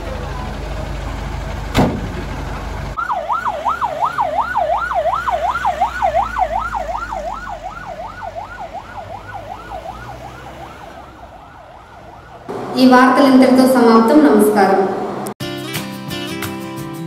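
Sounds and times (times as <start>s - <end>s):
sharp knock: 1.7s - 2.2s
ambulance siren yelping: 3.0s - 15.3s.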